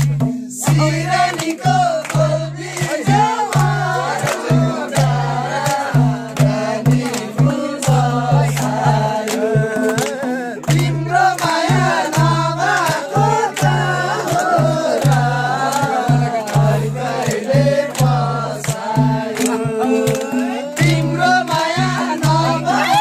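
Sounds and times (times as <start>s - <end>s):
barrel drum: 0.0s - 23.0s
men singing folk song: 0.0s - 23.0s
rhythmic hand clapping: 0.0s - 23.0s.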